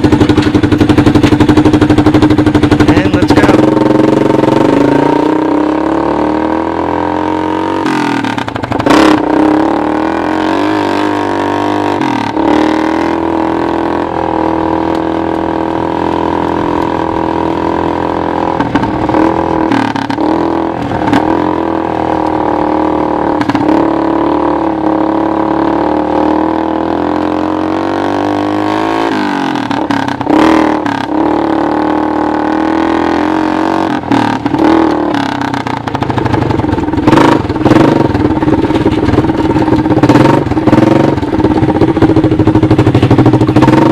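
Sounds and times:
four-stroke engine revving: 0.0s - 43.9s
knocks and rattles: 34.4s - 43.9s.

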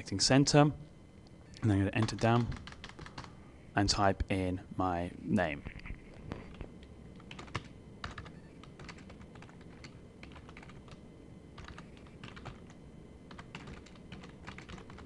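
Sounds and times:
typing on keyboard: 2.0s - 3.3s, 7.2s - 11.0s, 11.6s - 15.0s.

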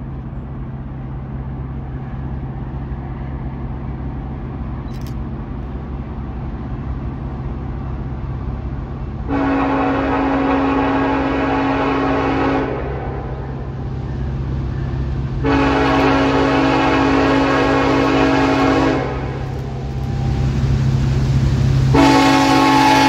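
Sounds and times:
train rumble: 0.0s - 23.0s
locomotive air horn blast: 9.2s - 13.6s, 15.4s - 20.6s, 21.9s - 23.0s.

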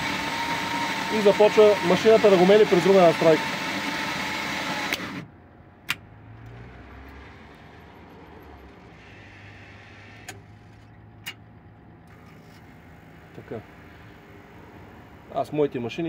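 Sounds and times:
vending machine hum: 0.0s - 16.0s.

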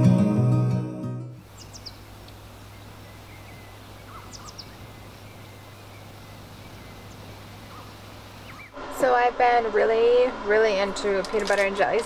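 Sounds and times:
outdoor hiss: 1.4s - 12.0s
high bird chirps: 1.6s - 2.1s, 2.7s - 8.8s.

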